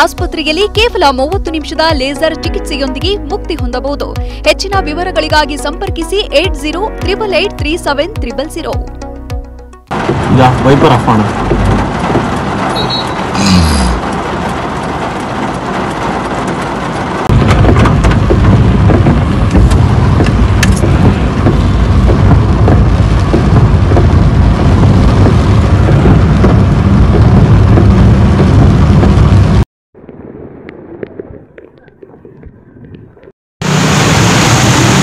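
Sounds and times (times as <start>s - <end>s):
heavy rain on street: 9.9s - 29.6s, 33.6s - 35.0s
traffic driving through rain: 9.9s - 29.6s, 33.6s - 35.0s
loud low rumble: 17.3s - 31.5s.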